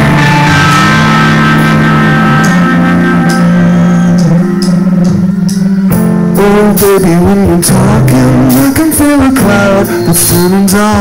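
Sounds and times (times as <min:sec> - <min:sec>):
drum kit: 0:00.0 - 0:11.0
electric guitars: 0:00.0 - 0:11.0.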